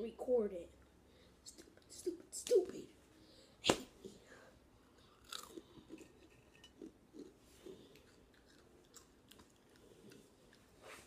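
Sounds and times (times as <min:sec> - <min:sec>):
crunchy chewing: 0:05.0 - 0:11.0.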